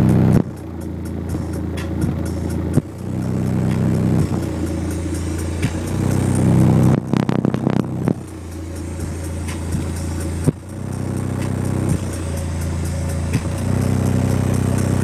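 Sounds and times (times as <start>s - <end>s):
rattling buzz: 0.0s - 15.0s
subwoofer playing deep bass: 0.0s - 15.0s.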